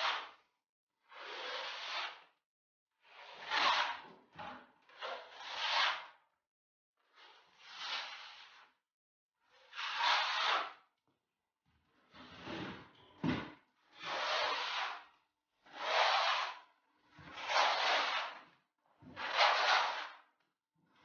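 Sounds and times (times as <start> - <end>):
plastering knife scraping wall: 1.1 - 2.2, 3.0 - 6.2, 9.7 - 10.8, 12.2 - 15.1, 15.7 - 20.3.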